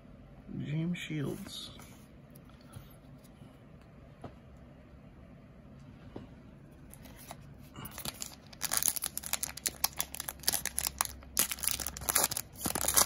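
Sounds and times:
foil wrapper tearing and crinkling: 7.9s - 13.0s.

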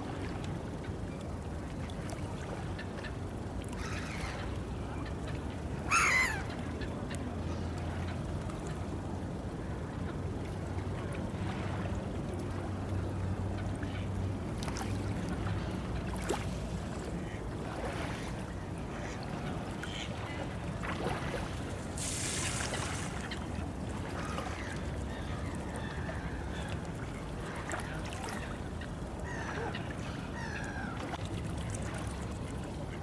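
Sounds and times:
ship engine hum: 0.1s - 33.0s
waterfowl calls: 5.8s - 6.9s, 29.2s - 31.2s
brief hiss: 22.0s - 23.3s.

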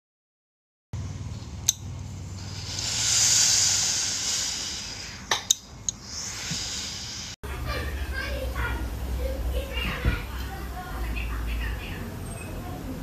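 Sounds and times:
steam iron hissing: 2.3s - 7.4s.

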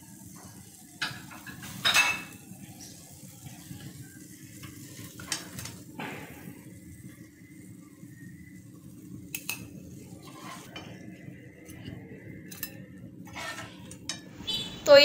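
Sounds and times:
metal spatula scraping frying pan: 10.1s - 11.0s, 12.5s - 14.6s.

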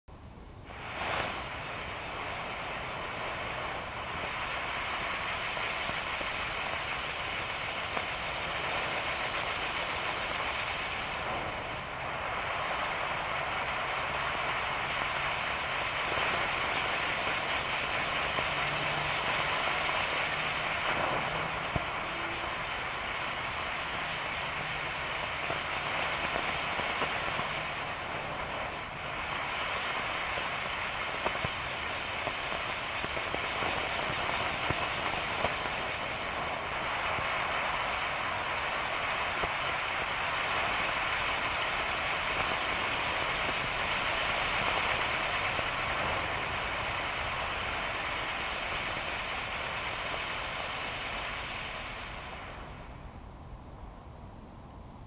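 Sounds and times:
firework wheel hissing: 0.3s - 53.3s
sharp firework crack: 0.6s - 53.2s.

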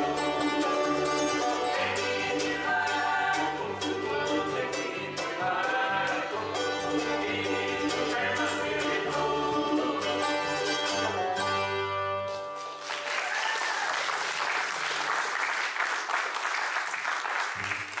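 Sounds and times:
bluegrass band playing: 0.0s - 12.8s
audience applause: 12.5s - 18.0s.

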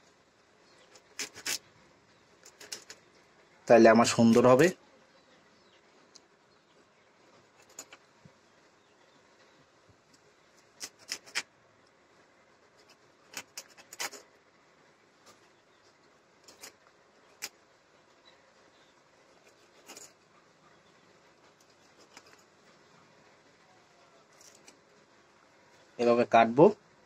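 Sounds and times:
knife scraping fish: 0.8s - 1.6s, 2.4s - 3.0s, 7.6s - 8.0s, 10.6s - 11.5s, 12.8s - 14.3s, 16.4s - 17.6s, 19.4s - 20.2s, 21.5s - 22.5s, 24.4s - 24.8s.

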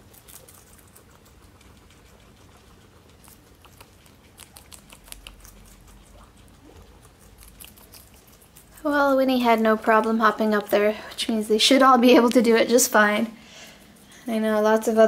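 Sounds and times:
guinea pig chewing lettuce: 0.0s - 15.0s.

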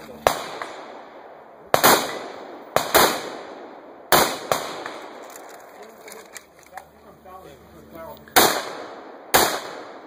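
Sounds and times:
rifle shots echoing: 0.1s - 5.9s, 8.3s - 10.0s.

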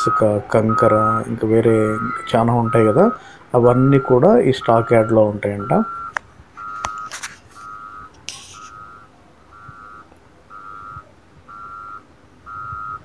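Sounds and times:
reversing alarm beeping: 0.0s - 13.0s
short hiss: 8.3s - 8.8s.

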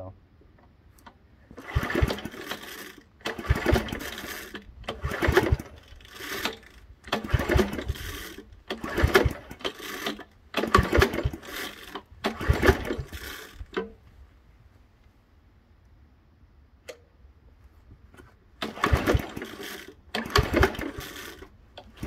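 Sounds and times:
engine pull-starter rattling: 1.0s - 14.0s, 18.2s - 22.0s.

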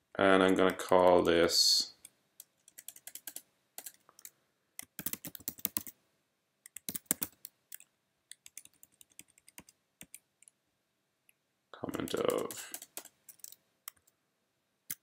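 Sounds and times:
computer keyboard typing: 2.4s - 6.0s, 6.7s - 10.6s, 11.9s - 14.2s.

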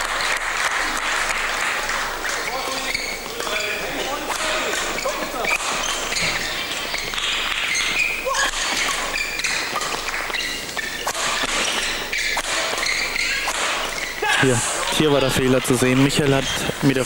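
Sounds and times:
crowd murmur in a hall: 0.0s - 10.8s
racket striking shuttlecock: 1.0s - 14.9s.

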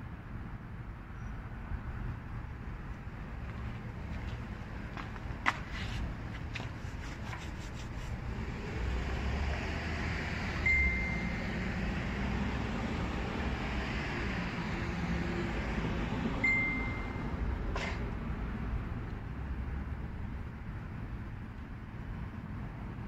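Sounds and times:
short high beeps: 10.7s - 11.4s, 16.4s - 17.3s.

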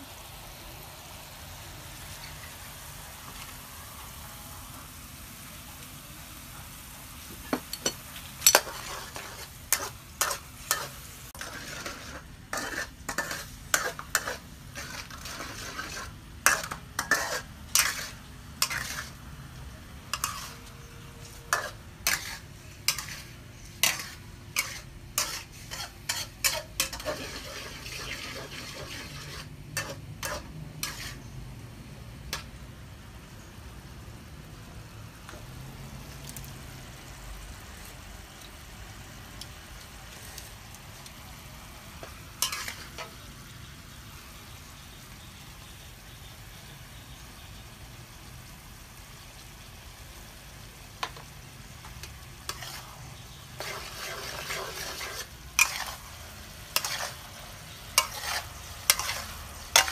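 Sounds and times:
faint steady hiss: 0.0s - 59.9s
utensil clacking in cooking pan: 7.2s - 19.4s, 20.0s - 31.4s, 32.2s - 32.7s, 37.7s - 46.2s, 49.0s - 59.9s.

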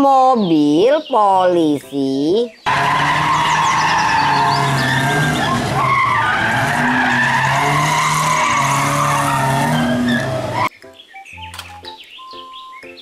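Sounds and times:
car engine running hard: 2.7s - 10.7s
tyres squealing: 2.7s - 10.7s.

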